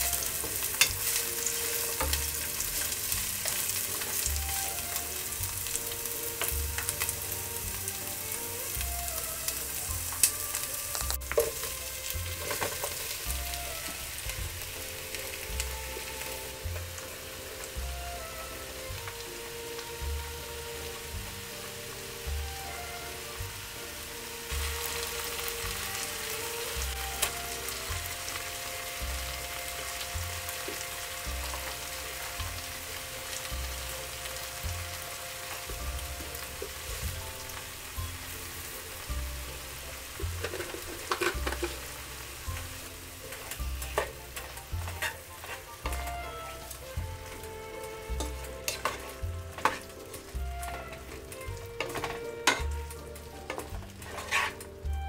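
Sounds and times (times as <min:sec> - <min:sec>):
soft waltz music: 0:00.0 - 0:55.0
vegetables sizzling in oil: 0:00.0 - 0:55.0
wooden spatula scraping pan: 0:06.4 - 0:14.8, 0:40.2 - 0:55.0.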